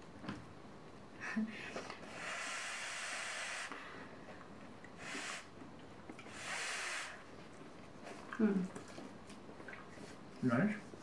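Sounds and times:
breath blown out in puffs: 2.0s - 4.1s, 5.0s - 5.6s, 6.2s - 7.3s.

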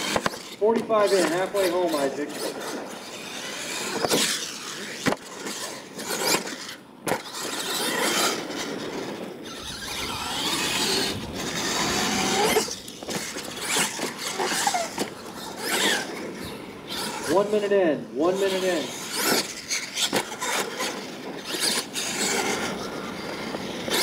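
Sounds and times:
toy truck motor revving: 0.0s - 17.6s, 18.3s - 24.0s
tyres scrabbling in dirt: 0.0s - 17.7s, 18.4s - 24.0s.

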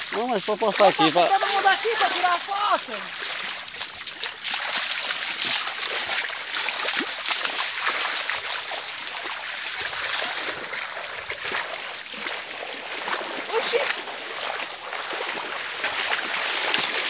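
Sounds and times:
feet splashing through shallow water: 0.0s - 17.0s
stream water hissing: 0.0s - 17.0s.

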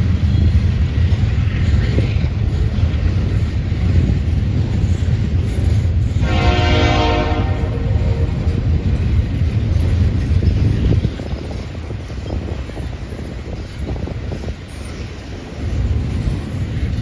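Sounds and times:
freight train rumbling past: 0.0s - 17.0s
distant locomotive horn: 6.2s - 8.5s.

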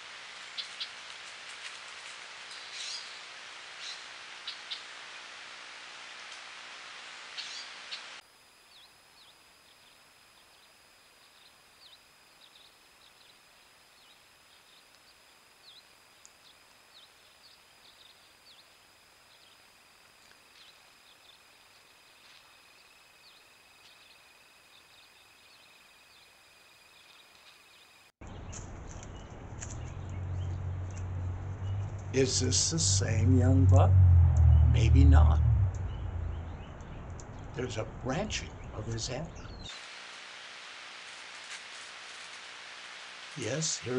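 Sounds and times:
steady high-pitched whine: 3.2s - 28.1s
low hiss: 32.0s - 36.4s, 37.6s - 43.9s.

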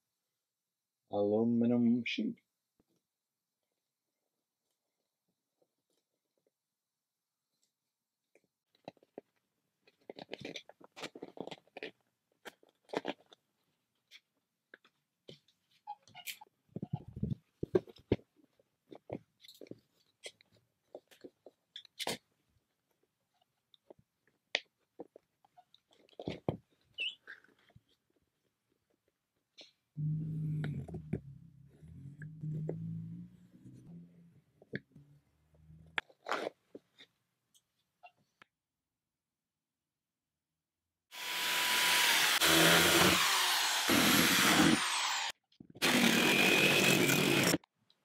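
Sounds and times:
electric drill boring metal: 41.1s - 47.6s.

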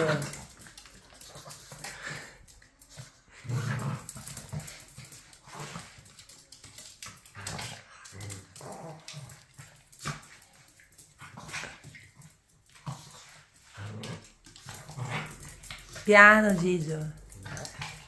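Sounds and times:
dogs growling while play-fighting: 0.0s - 16.6s, 17.2s - 18.0s.

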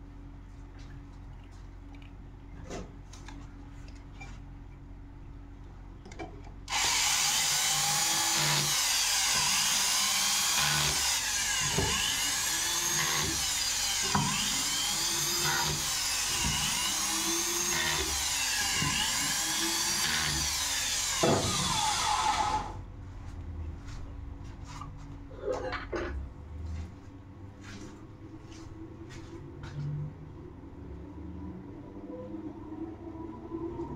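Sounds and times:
cordless drill driving bolts: 6.7s - 22.7s.

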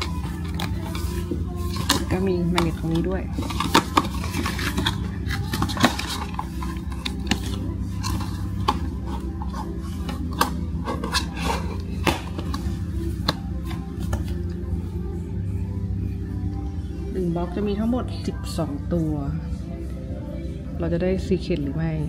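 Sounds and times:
cardboard being handled: 0.0s - 14.4s.

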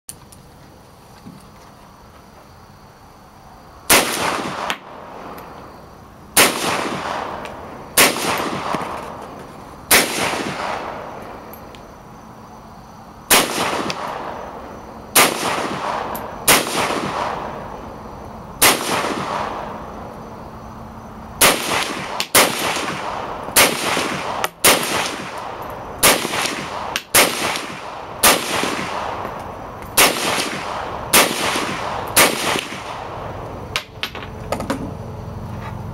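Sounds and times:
rifle shots echoing: 3.9s - 5.4s, 6.4s - 9.3s, 9.9s - 11.6s, 13.3s - 17.8s, 18.6s - 19.9s, 21.4s - 34.0s.

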